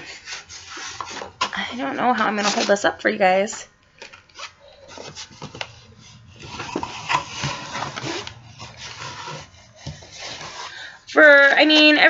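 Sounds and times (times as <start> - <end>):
cardboard box rustling and scraping: 4.3 - 11.0.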